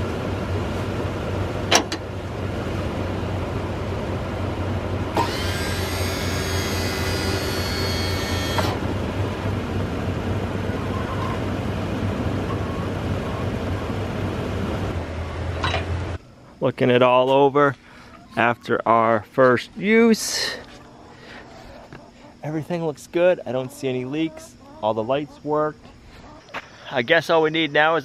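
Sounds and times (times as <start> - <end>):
electric pump motor whining: 5.1 - 9.6.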